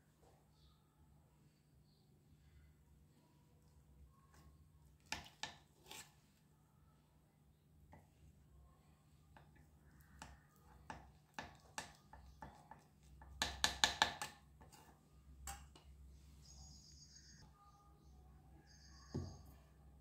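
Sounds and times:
knife cutting damp clay: 5.0 - 6.2.

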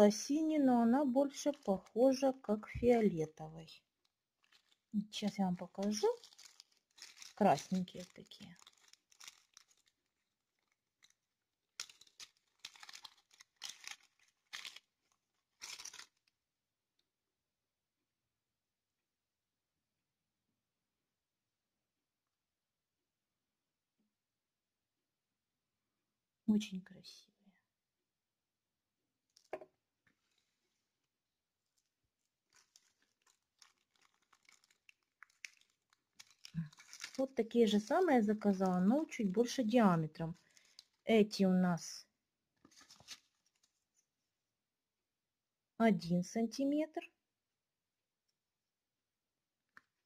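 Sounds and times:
plastic bag crinkling: 4.3 - 16.3, 31.7 - 41.1, 42.6 - 43.8.

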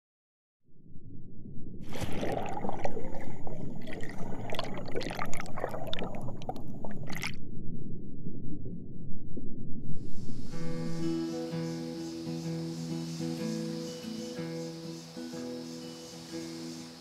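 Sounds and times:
muffled underwater rumble: 0.7 - 11.0
bubbles popping underwater: 1.9 - 7.4.

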